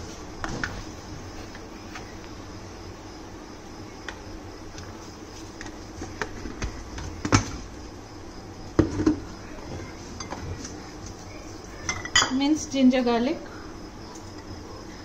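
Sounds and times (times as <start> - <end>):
containers knocking on countertop: 8.8 - 9.2.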